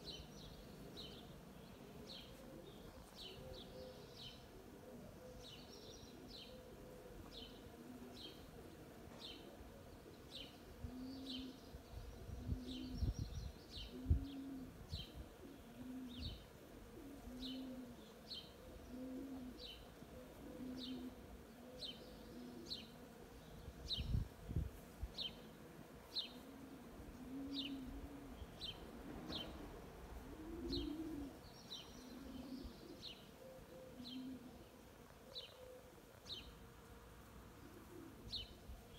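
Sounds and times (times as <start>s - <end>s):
songbird high chirp: 0.0s - 4.5s, 5.2s - 8.5s, 9.1s - 16.5s, 21.8s - 24.3s, 27.5s - 29.6s, 30.7s - 34.4s, 35.3s - 36.6s, 38.3s - 38.6s
dove cooing: 0.0s - 23.2s, 25.2s - 36.6s, 37.5s - 38.9s.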